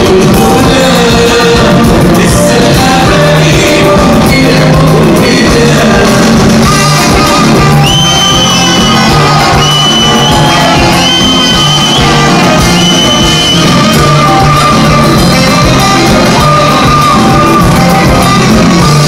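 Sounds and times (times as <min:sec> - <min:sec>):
live band music: 0:00.0 - 0:19.0
person singing: 0:00.0 - 0:19.0
shouts: 0:07.6 - 0:13.8.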